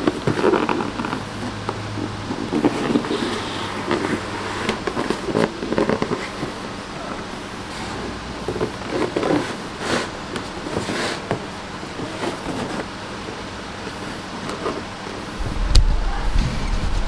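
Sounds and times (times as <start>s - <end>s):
cardboard box scraping and rubbing: 0.0s - 13.0s
steady background hum: 0.0s - 17.0s.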